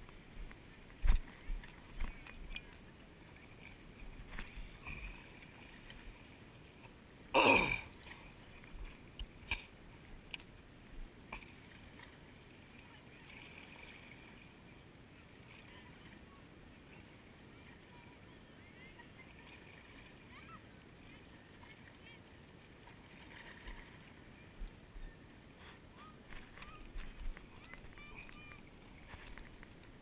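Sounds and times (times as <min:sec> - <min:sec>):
clicks and knocks of fishing reel: 0:26.4 - 0:30.0.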